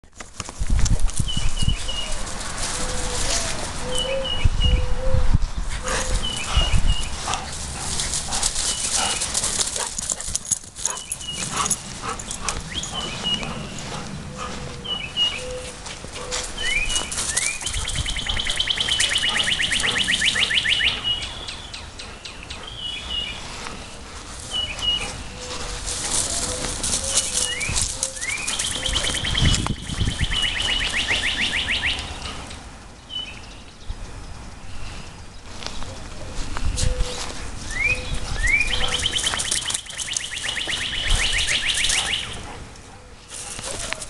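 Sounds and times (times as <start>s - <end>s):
rustling: 0.1s - 4.2s, 5.8s - 14.8s, 15.5s - 19.1s, 23.0s - 29.7s, 35.4s - 44.0s
small birds chirping: 5.5s - 44.0s
bird trill: 14.8s - 15.7s, 16.3s - 23.3s, 24.5s - 32.2s, 37.7s - 42.4s.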